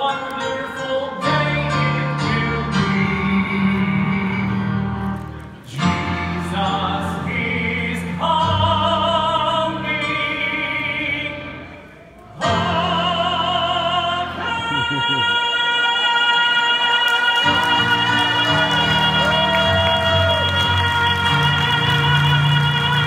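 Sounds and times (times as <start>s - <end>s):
digital piano: 0.0s - 15.8s
men singing with vibrato: 12.4s - 23.0s.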